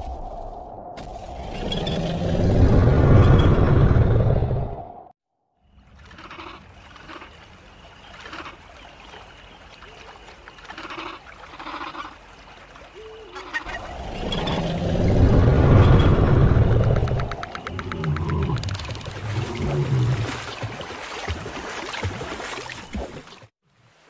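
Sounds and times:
low rumble: 0.0s - 5.1s, 13.8s - 18.6s.

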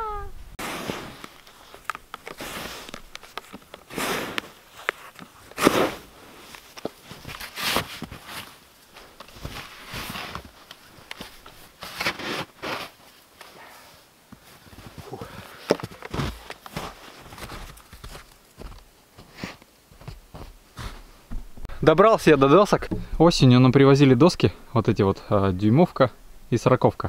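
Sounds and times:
snow shovel scraping snow: 0.6s - 3.0s, 3.8s - 10.6s, 11.6s - 14.0s, 16.1s - 18.2s
snow crunching: 0.6s - 21.3s.

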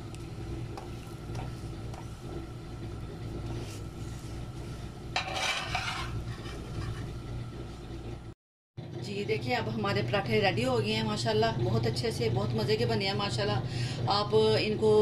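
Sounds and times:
steady low hum: 0.0s - 8.3s
metal spatula scraping frying pan: 5.2s - 7.2s.

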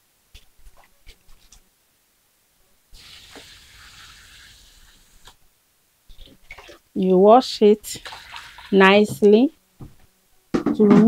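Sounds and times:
water pouring into plastic basin: 3.0s - 5.4s, 6.1s - 6.8s, 7.8s - 9.3s
plastic bowls knocking: 7.9s - 11.0s.

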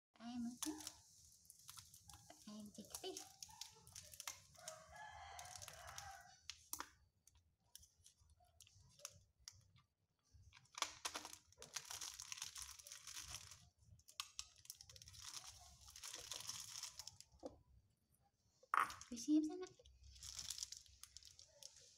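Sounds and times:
plastic bag crinkling: 0.3s - 6.9s, 10.5s - 17.5s, 19.8s - 21.9s.

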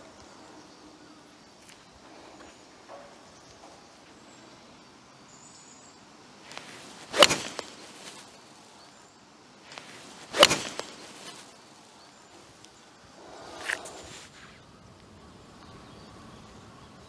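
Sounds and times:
golf club swish: 6.5s - 8.4s, 9.7s - 11.6s
golf club striking ball: 7.1s - 8.2s, 10.3s - 11.4s.

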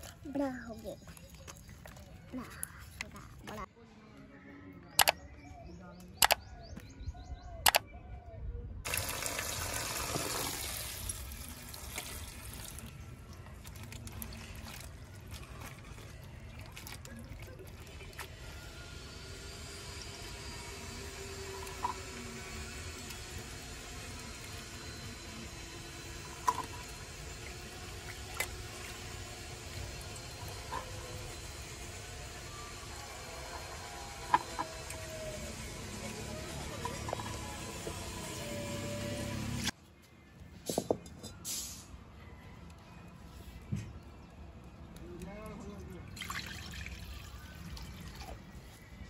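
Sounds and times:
sharp clicks: 4.9s - 5.2s, 6.0s - 6.5s, 7.6s - 7.8s
water pouring into steel bowl: 8.9s - 18.2s, 46.2s - 48.4s.

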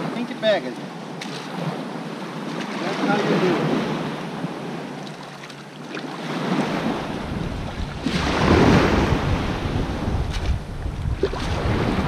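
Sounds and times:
shallow water washing: 0.0s - 12.0s
wind buffeting microphone: 6.2s - 12.0s.

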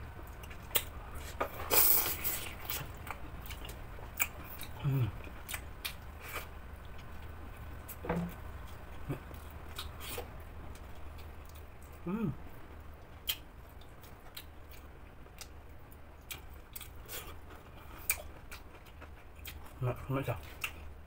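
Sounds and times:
chewing and lip-smacking: 2.0s - 4.8s, 5.4s - 7.1s, 8.7s - 12.0s, 13.2s - 15.6s, 16.2s - 19.8s, 20.4s - 20.8s
person humming: 4.8s - 5.2s, 12.0s - 12.4s.

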